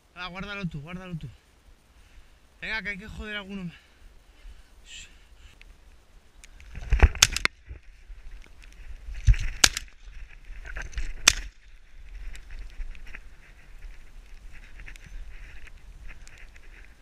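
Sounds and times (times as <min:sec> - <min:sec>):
rustling and clicks of movement: 0:05.3 - 0:17.0.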